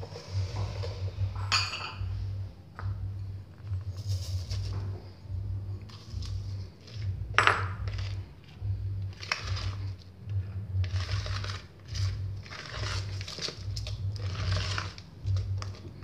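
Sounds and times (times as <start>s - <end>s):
spatula scraping plastic bowl: 0.0s - 1.4s, 7.8s - 16.0s
glass bowl clinking: 1.4s - 2.1s, 7.3s - 8.0s.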